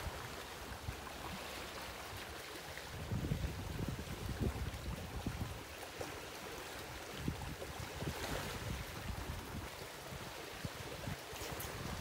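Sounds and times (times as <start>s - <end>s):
running water: 0.0s - 12.0s.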